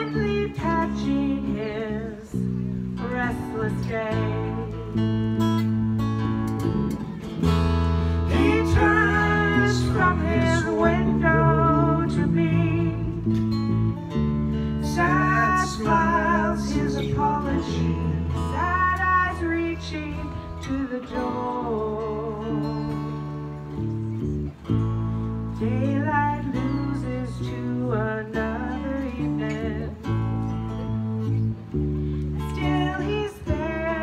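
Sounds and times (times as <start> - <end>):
woman singing: 0.0 - 2.4, 3.0 - 5.1, 8.3 - 13.4, 14.8 - 22.9, 25.6 - 30.1, 32.4 - 34.0
electric bass guitar: 0.0 - 34.0
strummed acoustic guitar: 0.0 - 34.0.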